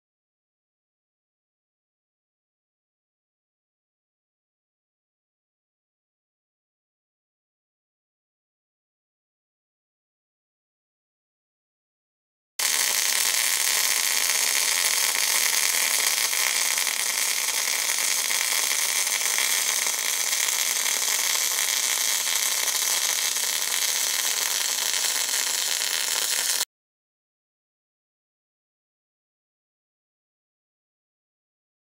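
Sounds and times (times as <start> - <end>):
welding arc hissing: 12.6 - 26.7.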